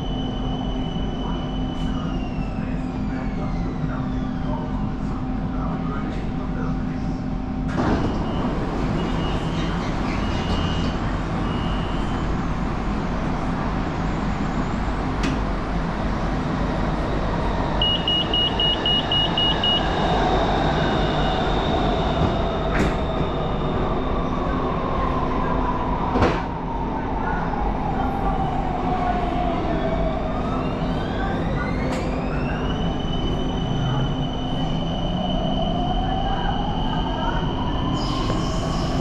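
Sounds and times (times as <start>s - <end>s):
high electronic beeps: 17.8s - 19.8s.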